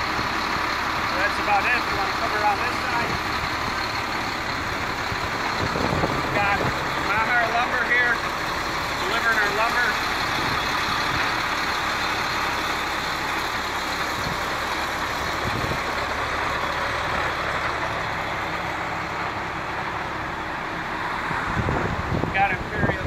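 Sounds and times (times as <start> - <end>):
diesel truck engine idling: 0.0 - 23.0.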